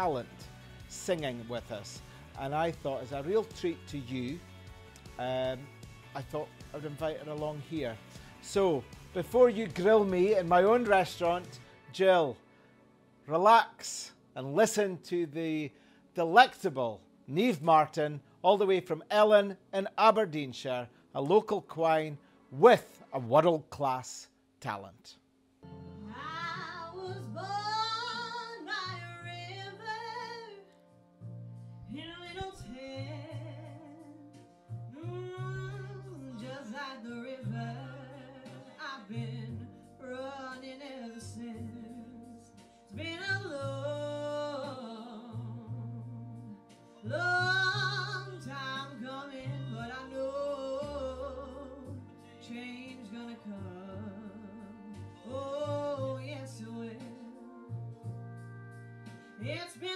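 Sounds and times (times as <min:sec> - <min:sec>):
woman singing into a microphone: 0:26.0 - 0:30.6, 0:31.9 - 0:34.3, 0:35.0 - 0:42.3, 0:42.9 - 0:57.5, 0:59.4 - 0:59.9
sustained instrumental accompaniment: 0:57.2 - 0:59.5.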